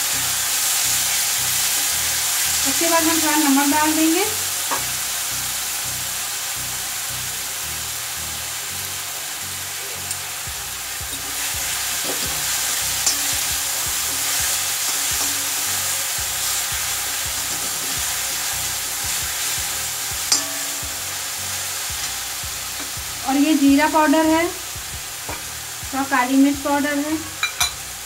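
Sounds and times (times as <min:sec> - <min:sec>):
vegetables sizzling in oil: 0:00.0 - 0:28.0
metal spatula scraping a pan: 0:17.3 - 0:19.6, 0:20.3 - 0:21.0.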